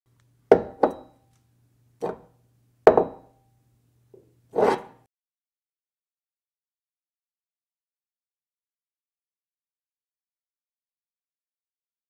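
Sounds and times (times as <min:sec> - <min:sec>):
sharp knocks with ringing tone: 0:00.5 - 0:01.2, 0:02.9 - 0:03.3.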